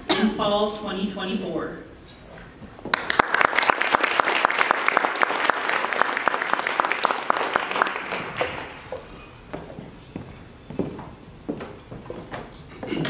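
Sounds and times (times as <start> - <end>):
audience applauding: 2.9 - 9.0.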